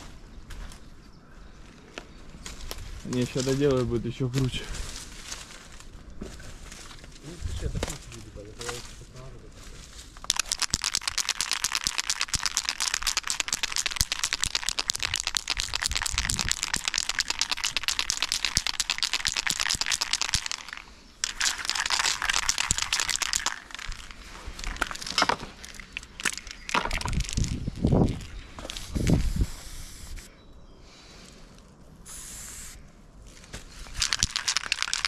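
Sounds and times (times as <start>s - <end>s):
spray-paint can hissing: 10.3s - 24.0s, 28.8s - 30.3s, 32.1s - 32.8s, 34.0s - 35.0s.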